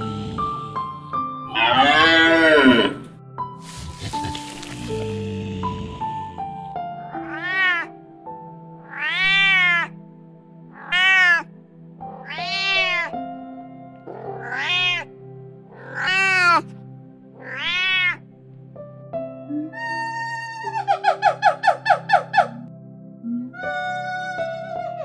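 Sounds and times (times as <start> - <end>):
cat meowing: 1.5 - 2.8, 7.1 - 8.0, 8.8 - 10.0, 10.7 - 11.5, 12.2 - 13.2, 14.1 - 15.1, 15.7 - 16.7, 17.4 - 18.2.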